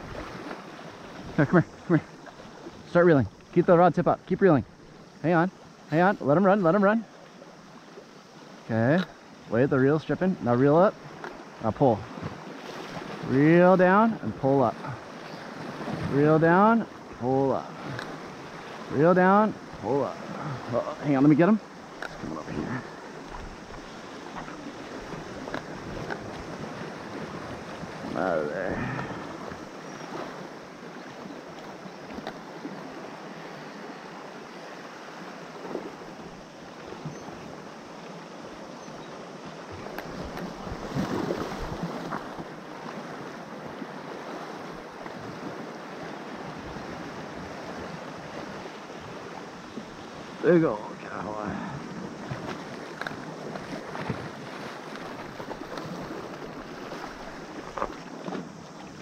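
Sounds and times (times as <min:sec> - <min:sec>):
water lapping against rocks: 0:00.0 - 0:05.2, 0:10.5 - 0:34.2, 0:38.4 - 0:59.0
wind on microphone: 0:22.0 - 0:30.2.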